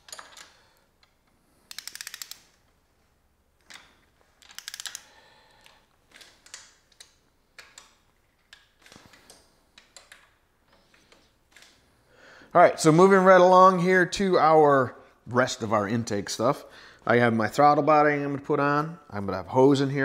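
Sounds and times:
ratchet wrench clicking: 1.7s - 2.6s, 4.5s - 5.1s.

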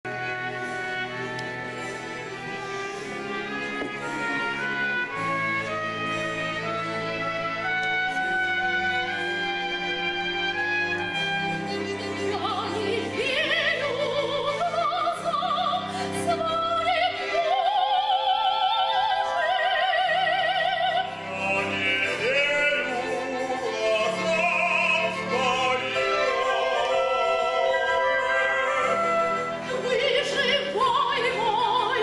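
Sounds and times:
orchestral music: 0.0s - 32.0s
operatic voice singing: 12.3s - 32.0s.

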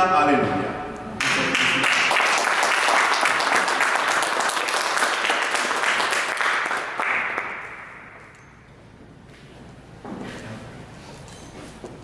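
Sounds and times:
people clapping: 1.2s - 8.3s.

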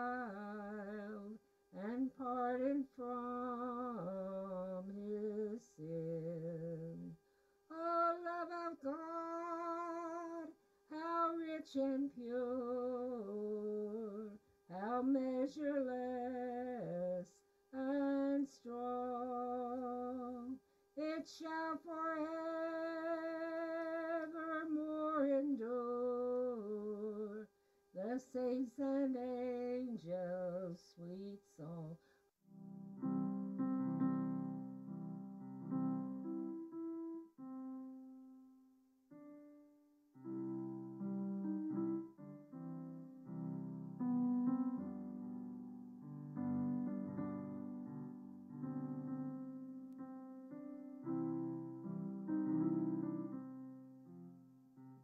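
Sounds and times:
elderly woman singing a hymn: 0.0s - 32.0s
piano accompaniment: 32.6s - 55.0s.

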